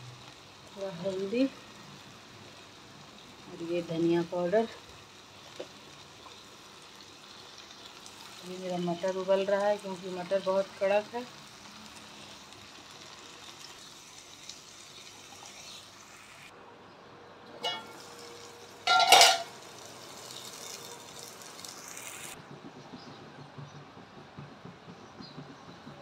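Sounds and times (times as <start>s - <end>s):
masala sizzling in a pan: 0.0s - 16.5s, 17.5s - 22.4s
metal spoon clanking on pan: 17.6s - 18.0s, 18.8s - 19.6s.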